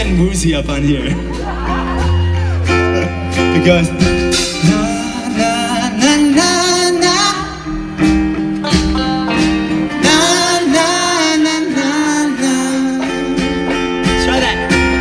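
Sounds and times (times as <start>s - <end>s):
strummed guitar: 0.0s - 15.0s
man singing: 3.5s - 7.9s, 8.6s - 15.0s.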